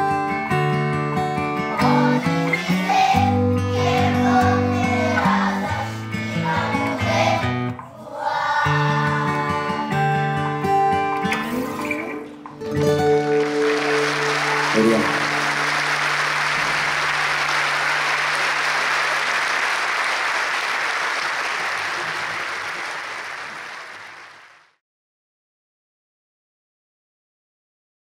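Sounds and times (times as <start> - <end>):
acoustic guitar chord ringing: 9.8 - 18.9
audience applauding: 12.6 - 24.8.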